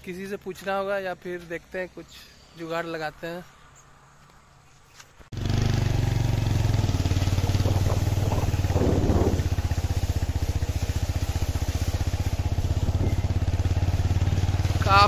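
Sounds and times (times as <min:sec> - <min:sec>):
motorcycle engine cruising: 0:05.3 - 0:15.0.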